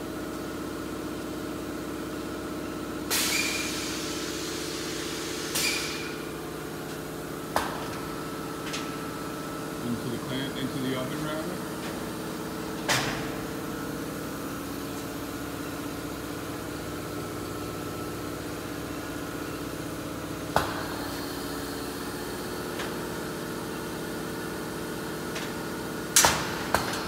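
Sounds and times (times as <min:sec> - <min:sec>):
machine humming: 0:05.9 - 0:17.8.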